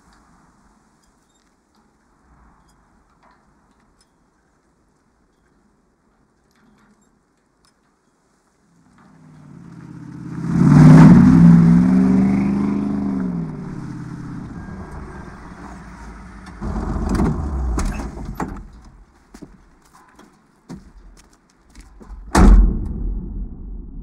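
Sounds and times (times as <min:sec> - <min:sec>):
low engine rumble: 0:08.8 - 0:19.1
pickup truck driving by: 0:09.0 - 0:18.8.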